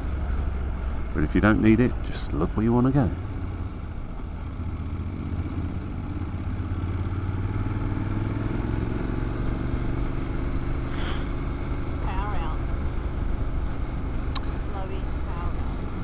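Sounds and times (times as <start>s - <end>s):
motorcycle engine running: 0.0s - 16.0s
brief hiss: 10.9s - 11.3s.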